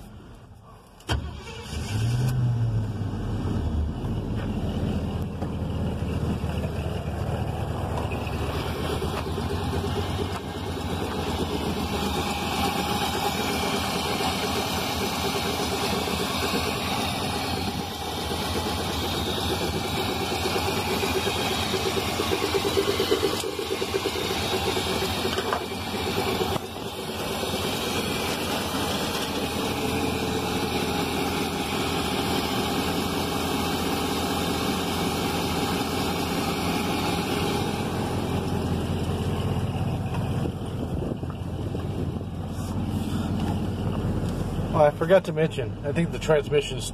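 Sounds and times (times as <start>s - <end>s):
pickup truck engine idling: 2.8s - 46.9s.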